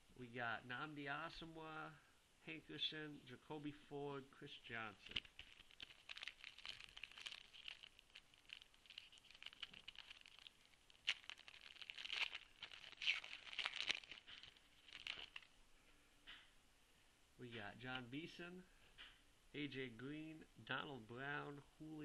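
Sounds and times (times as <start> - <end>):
foil wrapper tearing and crinkling: 5.0 - 15.5.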